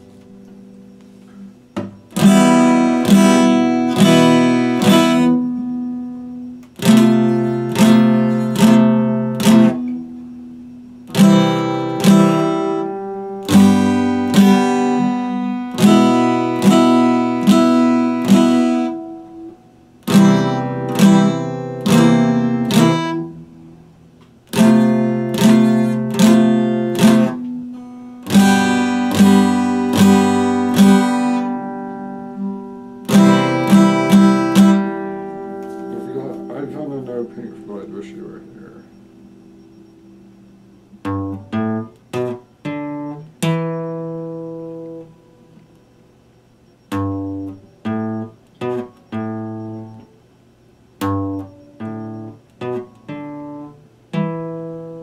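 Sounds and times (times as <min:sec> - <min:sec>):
acoustic guitar strumming chords: 0:00.0 - 0:55.0.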